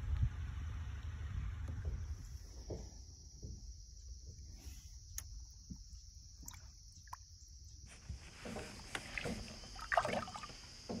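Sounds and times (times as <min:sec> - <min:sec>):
steady high-pitched hiss: 0:00.0 - 0:11.0
water splashing and sloshing: 0:07.9 - 0:11.0.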